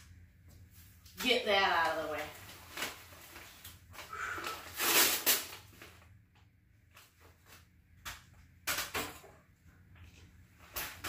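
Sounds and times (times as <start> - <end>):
packing paper rustling and crinkling: 0.8 - 6.2.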